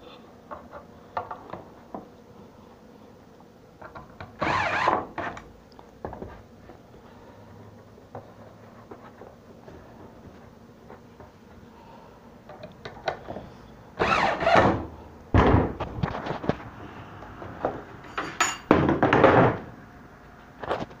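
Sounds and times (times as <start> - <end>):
wooden board thunk: 15.4 - 15.8.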